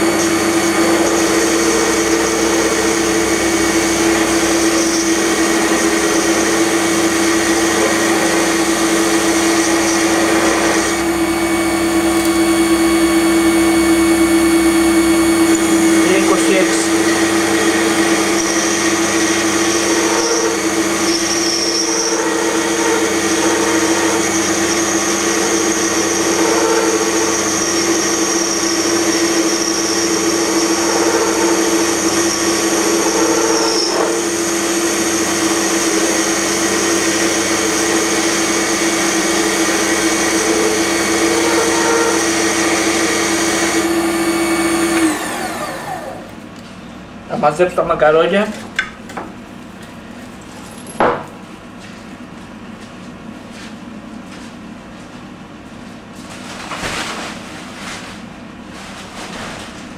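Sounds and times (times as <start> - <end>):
high whine: 0.0 - 46.3
metal lathe cutting metal: 0.0 - 46.3
motor winding down: 0.0 - 46.3.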